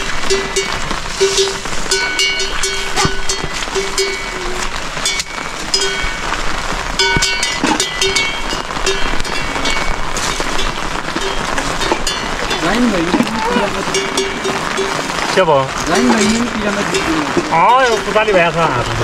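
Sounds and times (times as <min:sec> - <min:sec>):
heavy rain falling: 0:00.0 - 0:19.0.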